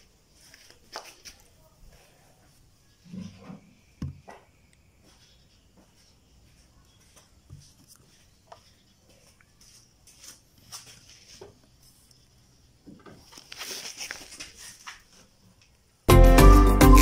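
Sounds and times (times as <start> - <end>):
scuffing on concrete floor: 0.0 - 2.2, 4.2 - 12.2, 13.2 - 15.4.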